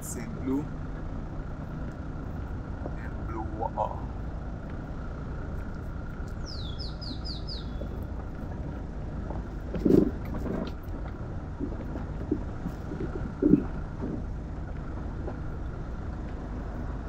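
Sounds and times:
vehicle rumbling on gravel: 0:00.0 - 0:17.0
bird calling descending notes: 0:06.4 - 0:08.0.

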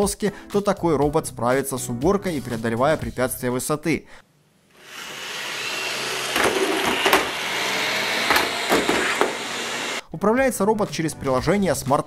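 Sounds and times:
robot vacuum suction fan: 0:04.8 - 0:10.0.

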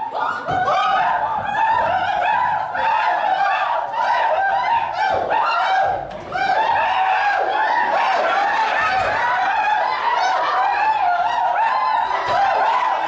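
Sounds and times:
high voices laughing and shrieking: 0:00.0 - 0:13.0.

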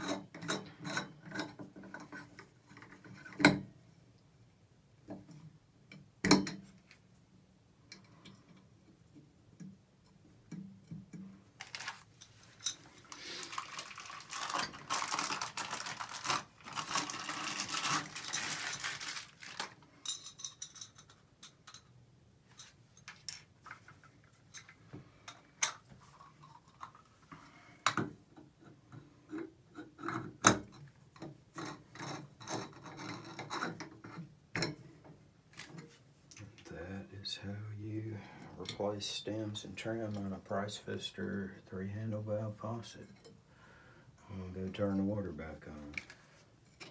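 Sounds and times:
metal faucet parts clinking: 0:19.9 - 0:23.5.

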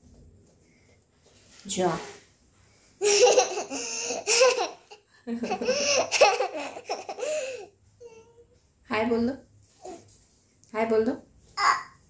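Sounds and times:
young child laughing: 0:03.0 - 0:07.6.

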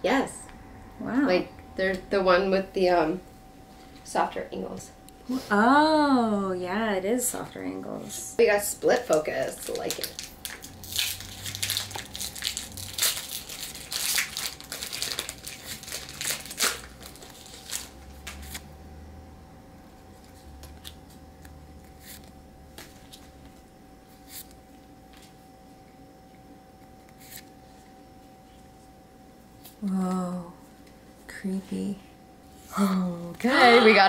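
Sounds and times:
foil wrappers crinkling: 0:08.8 - 0:18.6.

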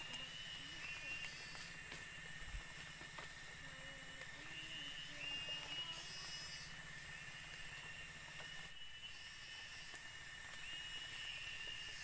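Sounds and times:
faint ticks: 0:00.0 - 0:00.3
forest insects chorus: 0:00.0 - 0:12.0
high insect tone: 0:00.0 - 0:12.0.

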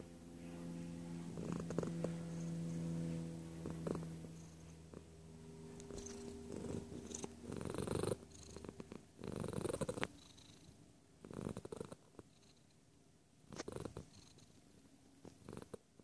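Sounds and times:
cat purring: 0:01.2 - 0:02.8, 0:03.6 - 0:12.8, 0:13.5 - 0:16.0.

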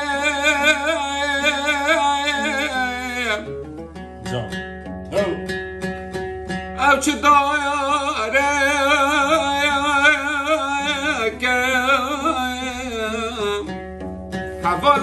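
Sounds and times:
man singing: 0:00.0 - 0:03.5, 0:06.8 - 0:13.8, 0:14.6 - 0:15.0
oud: 0:00.0 - 0:15.0.

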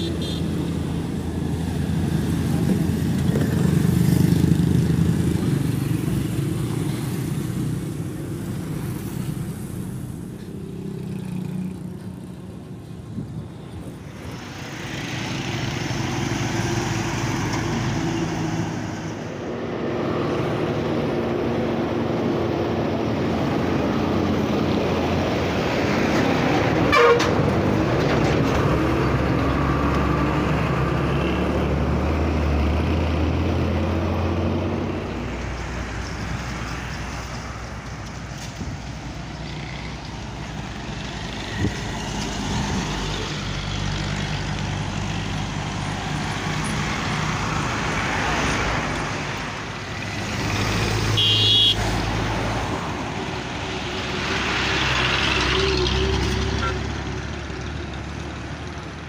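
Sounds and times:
heavy trucks passing: 0:00.0 - 0:59.0
traffic noise: 0:00.0 - 0:59.0
horn toot: 0:26.9 - 0:27.4, 0:51.1 - 0:51.8.

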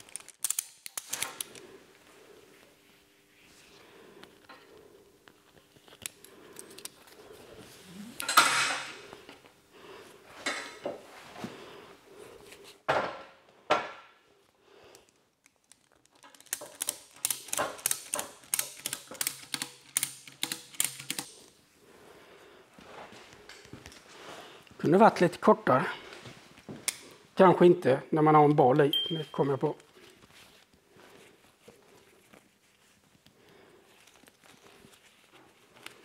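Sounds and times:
ratchet handle clicking: 0:16.1 - 0:21.4.

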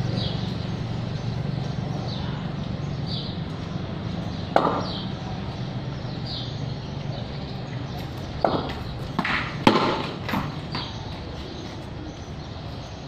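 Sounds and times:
steady low hum: 0:00.0 - 0:13.0
sharp knocks: 0:04.5 - 0:05.1, 0:08.4 - 0:11.0.

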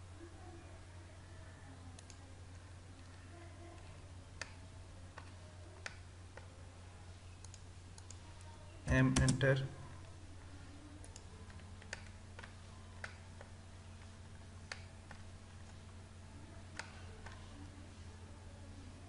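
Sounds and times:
steady low hum: 0:00.0 - 0:19.0
mouse and keyboard clicks: 0:16.7 - 0:17.4.

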